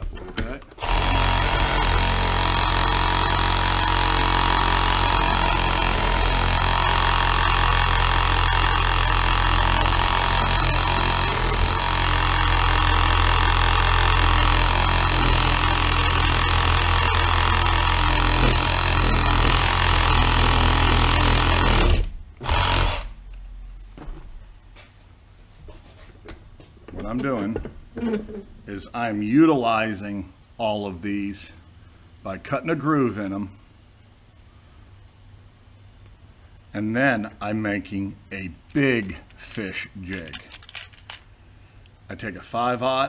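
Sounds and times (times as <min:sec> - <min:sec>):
reciprocating saw cutting metal: 0:00.8 - 0:23.1.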